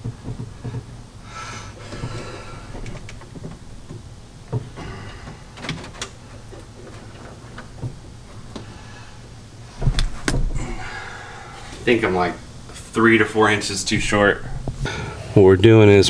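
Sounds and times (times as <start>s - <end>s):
thumps under dashboard: 0.0s - 1.0s, 1.9s - 5.3s, 6.4s - 8.8s.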